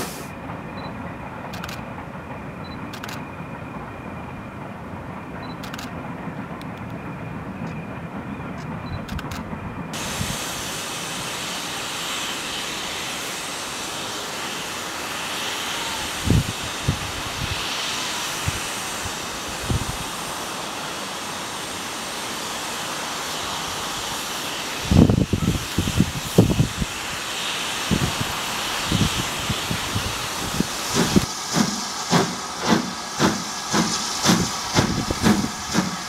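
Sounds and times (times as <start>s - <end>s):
steam hissing: 0.0s - 6.4s, 9.9s - 36.0s.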